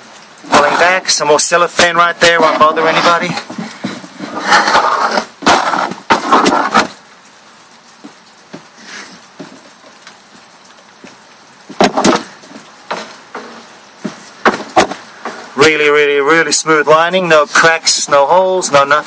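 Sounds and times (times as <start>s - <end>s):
low steady hiss: 0.0s - 19.0s
loud rustling and clattering: 1.8s - 7.0s, 8.0s - 15.6s
sharp knocks: 5.1s - 7.0s, 11.7s - 15.5s.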